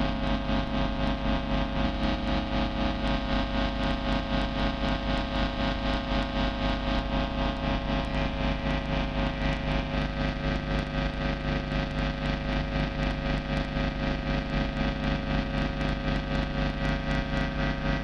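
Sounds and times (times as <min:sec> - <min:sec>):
distorted electric guitar drone: 0:00.0 - 0:18.0.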